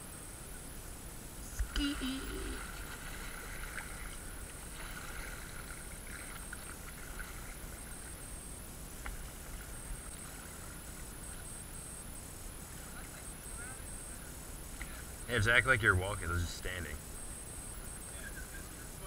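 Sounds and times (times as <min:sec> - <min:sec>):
water moving against board: 0:02.5 - 0:08.2.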